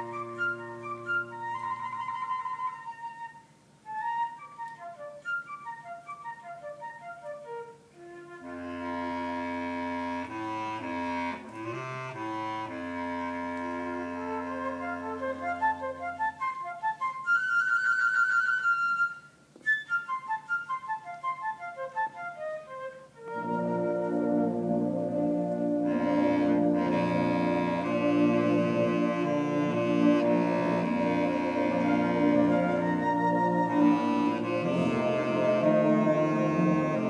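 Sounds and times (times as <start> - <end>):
piccolo playing quick runs: 0.0 - 37.0
tuba long low notes: 8.4 - 16.2, 23.2 - 37.0.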